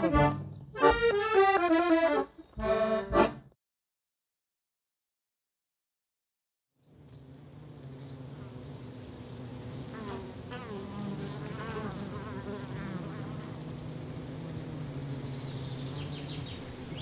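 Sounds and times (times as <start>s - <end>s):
honeybees humming: 6.8s - 17.0s.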